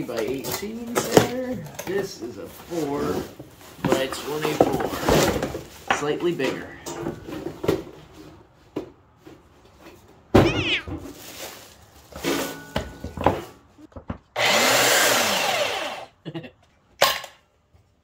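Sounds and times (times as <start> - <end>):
plastic packaging rustling: 10.6 - 12.6
belt sander motor running: 14.4 - 16.1.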